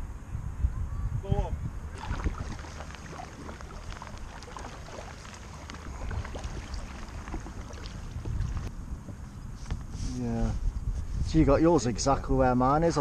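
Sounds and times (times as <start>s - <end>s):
paddle dipping and dripping: 1.8s - 9.1s
water lapping against hull: 1.9s - 8.7s.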